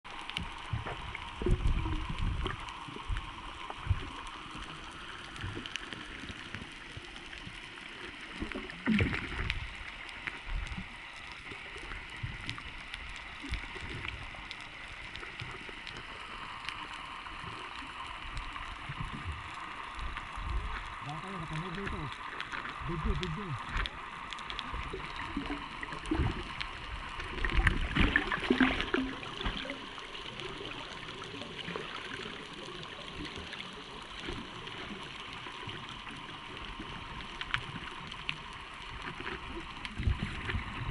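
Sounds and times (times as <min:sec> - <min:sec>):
underwater hiss and gurgling: 0:00.1 - 0:40.9
underwater thumps and bubbling: 0:00.3 - 0:04.3, 0:08.4 - 0:09.8, 0:21.5 - 0:29.9, 0:39.0 - 0:40.9.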